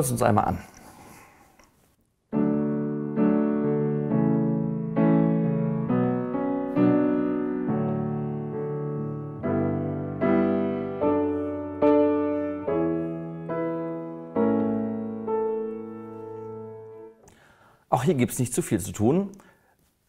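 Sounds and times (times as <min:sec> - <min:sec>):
piano playing slow chords: 0:02.3 - 0:17.4.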